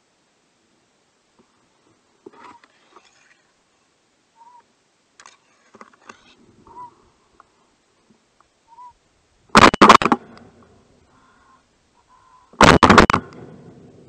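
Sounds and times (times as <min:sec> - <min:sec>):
faint short whistled calls: 0:04.4 - 0:04.7, 0:08.6 - 0:09.0
faint clicks and rustles: 0:04.6 - 0:08.6.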